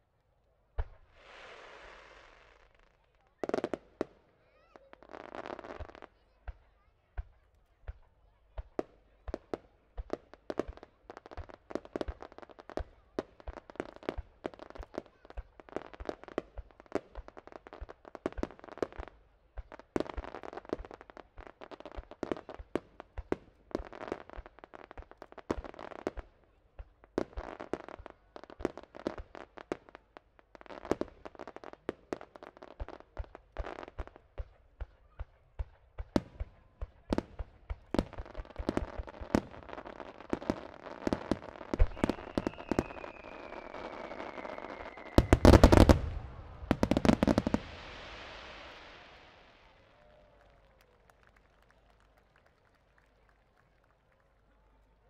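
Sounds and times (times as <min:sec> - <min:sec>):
fireworks crackling: 0:00.8 - 0:05.9, 0:36.0 - 0:52.7
fireworks bangs: 0:35.6 - 0:50.2.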